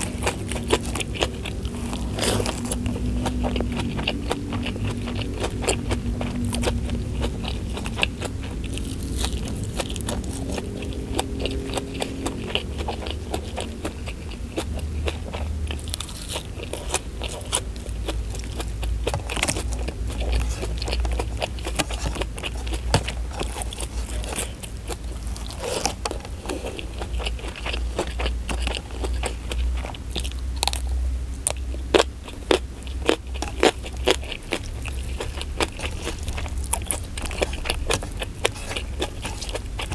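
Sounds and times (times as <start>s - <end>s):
chewing and crunching food: 0.0s - 39.9s
steady low hum: 0.0s - 39.9s.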